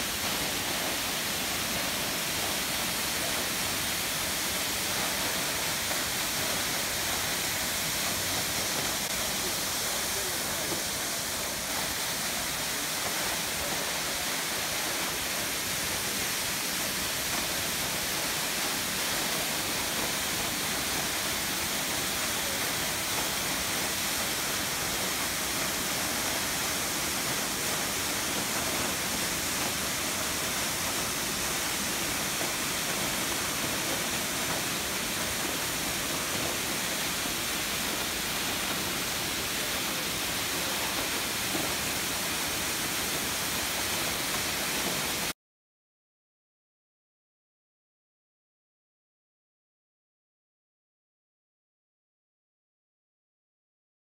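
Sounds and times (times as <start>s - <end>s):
waterfall rushing onto rocks: 0.0s - 45.4s.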